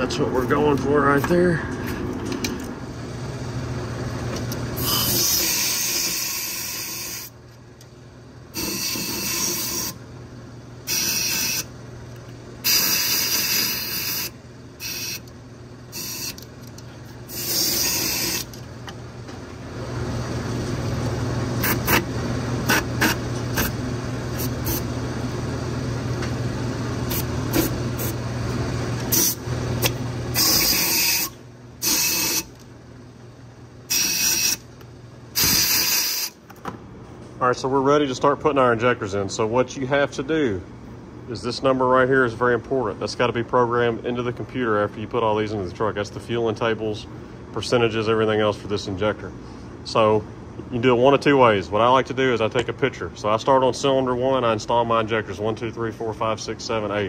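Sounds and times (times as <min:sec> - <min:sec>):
compressed air blasts: 0:35.4 - 0:36.4.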